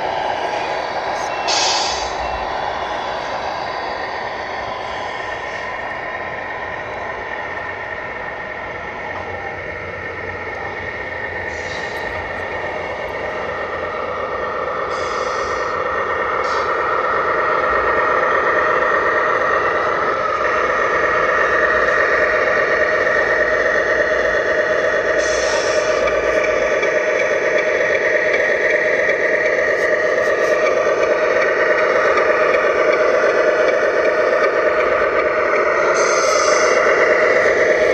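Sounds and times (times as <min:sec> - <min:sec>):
radio-controlled trucks whining: 0:00.0 - 0:37.9
hiss: 0:01.3 - 0:02.3, 0:11.5 - 0:12.2, 0:14.9 - 0:15.8, 0:16.4 - 0:16.8, 0:25.1 - 0:26.7, 0:35.7 - 0:37.8.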